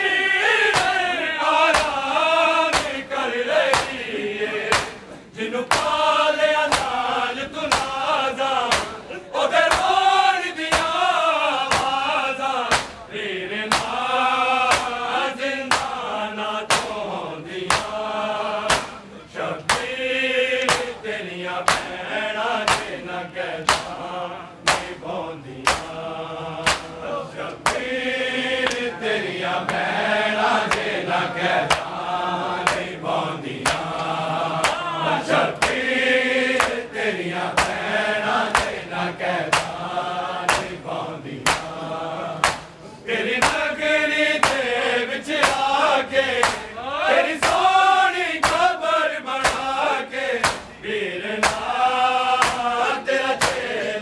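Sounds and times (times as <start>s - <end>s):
men chanting: 0.0s - 54.0s
hands slapping chests: 0.7s - 4.1s, 4.7s - 6.1s, 6.7s - 9.0s, 9.7s - 10.0s, 10.6s - 12.1s, 12.7s - 13.1s, 13.7s - 14.1s, 14.7s - 16.1s, 16.7s - 20.0s, 20.6s - 21.0s, 21.6s - 22.0s, 22.6s - 26.0s, 26.6s - 28.0s, 28.6s - 29.0s, 29.6s - 30.0s, 30.6s - 35.9s, 36.5s - 41.8s, 42.4s - 42.8s, 43.4s - 43.8s, 44.4s - 46.8s, 47.4s - 47.8s, 48.4s - 50.8s, 51.4s - 53.7s.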